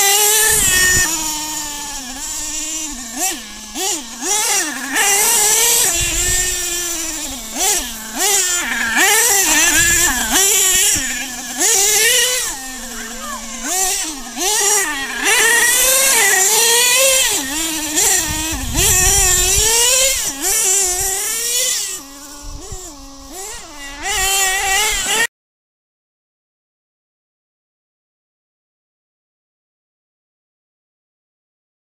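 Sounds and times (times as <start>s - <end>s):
nitro engine revving: 0.0s - 25.3s.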